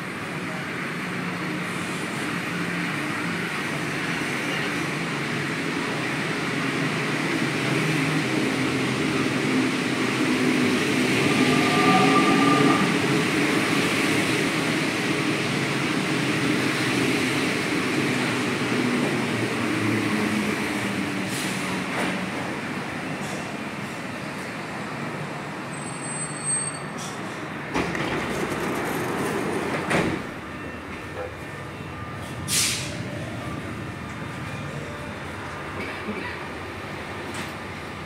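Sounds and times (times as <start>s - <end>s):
metro train pulling in: 0.0s - 38.0s.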